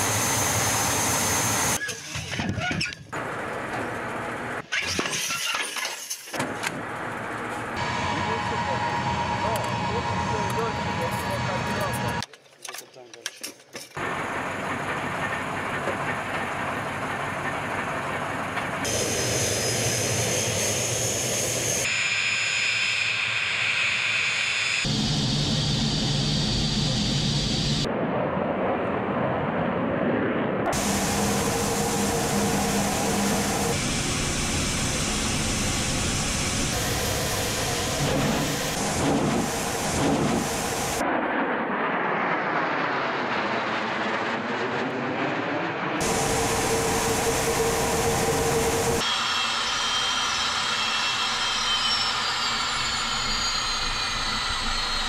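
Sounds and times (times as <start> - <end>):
jet engines roaring: 0.0 - 2.5, 6.7 - 12.3, 14.0 - 55.0
high engine whine: 0.0 - 4.6, 6.4 - 12.3, 14.0 - 55.0
aircraft passing: 39.3 - 49.0.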